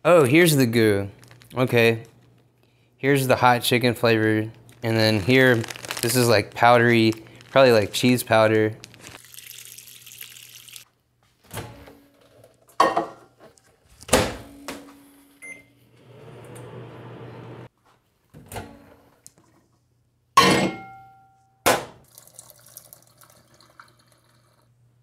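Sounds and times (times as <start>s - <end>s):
microwave oven humming: 14.2s - 17.7s.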